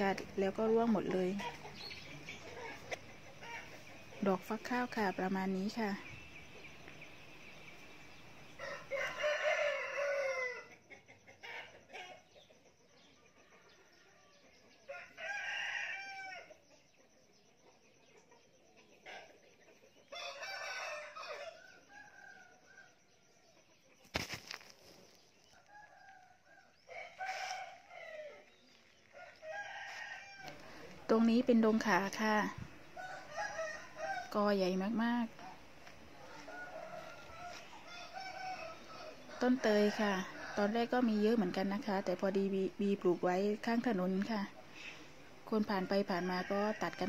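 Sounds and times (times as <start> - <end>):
rooster crowing: 8.6 - 10.9, 14.2 - 16.5, 20.1 - 23.0, 25.6 - 30.9, 33.0 - 34.4, 36.1 - 41.3.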